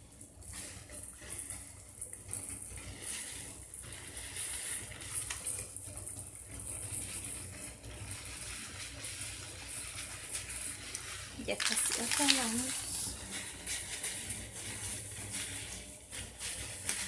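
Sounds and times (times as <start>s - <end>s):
sand pouring and rustling: 8.1s - 17.0s.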